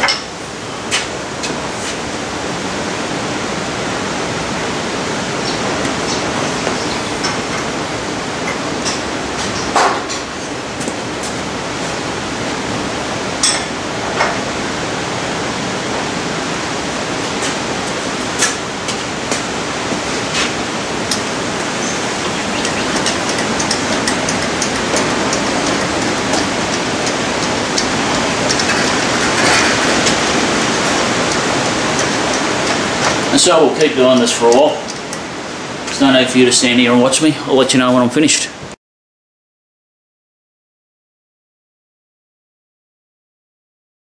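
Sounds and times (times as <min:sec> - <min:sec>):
rain on a metal roof: 0:00.5 - 0:37.1
spanner clinking on metal: 0:21.8 - 0:35.2.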